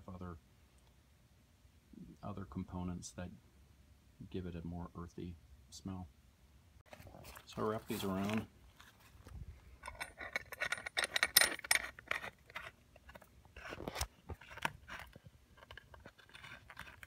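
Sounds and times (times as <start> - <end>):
metal clamp clinking: 9.8 - 13.2.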